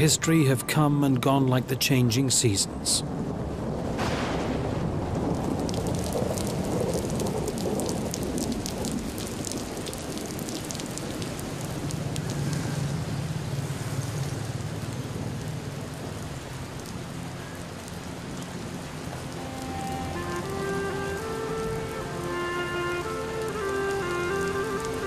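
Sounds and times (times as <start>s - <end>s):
rain pattering on tarpaulins: 2.3s - 25.0s
thunder rumble: 2.8s - 16.9s.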